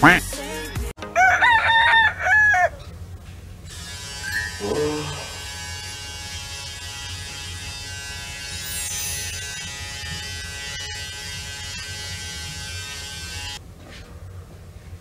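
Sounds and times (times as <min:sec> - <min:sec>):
rooster crowing: 0:01.1 - 0:02.9
electric shaver buzzing: 0:03.7 - 0:13.6.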